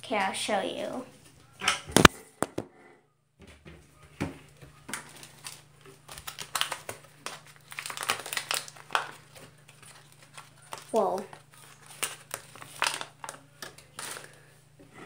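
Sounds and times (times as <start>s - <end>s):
crinkling and rustling handling: 3.4s - 15.0s.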